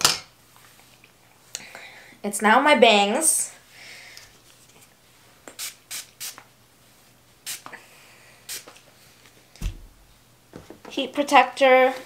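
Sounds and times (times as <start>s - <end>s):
dull thump: 9.6s - 10.1s.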